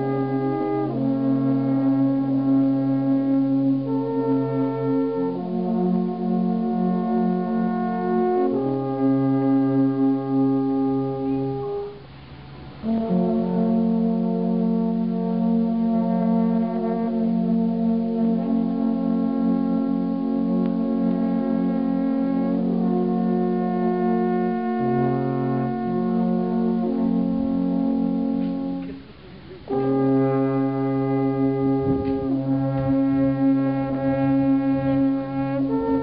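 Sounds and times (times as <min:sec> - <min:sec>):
alphorns playing in harmony: 0:00.0 - 0:36.0.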